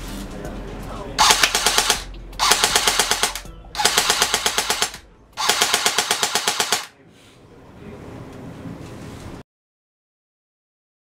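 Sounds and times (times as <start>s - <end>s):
airsoft rifle automatic fire: 1.2s - 6.9s.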